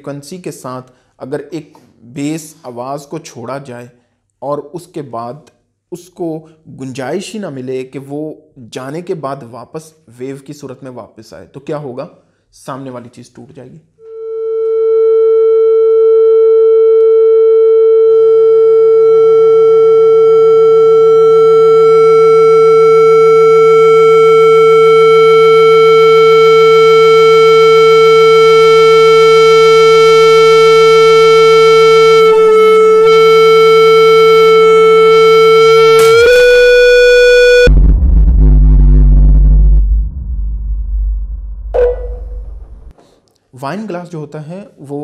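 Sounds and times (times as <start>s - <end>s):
loud steady pure tone: 14.0s - 42.9s.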